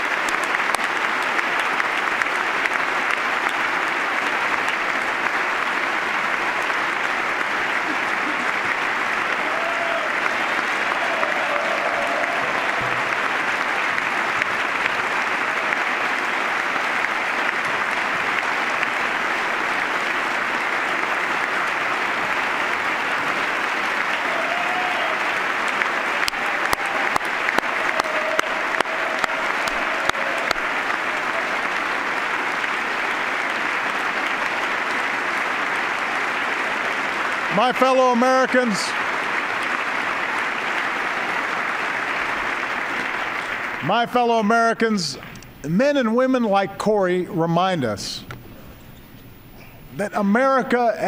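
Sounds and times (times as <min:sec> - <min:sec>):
sharp individual claps: 0:00.0 - 0:44.0
large audience applauding: 0:00.0 - 0:47.2.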